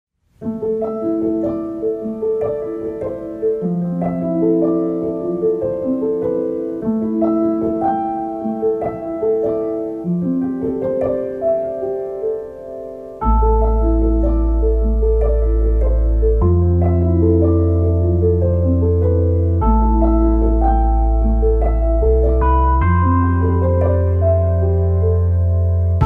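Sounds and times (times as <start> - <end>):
piano melody: 0.3 - 26.0.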